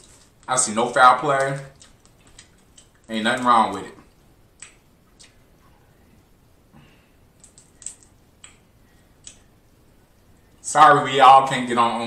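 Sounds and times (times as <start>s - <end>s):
crawfish shell cracking: 0.0s - 4.0s.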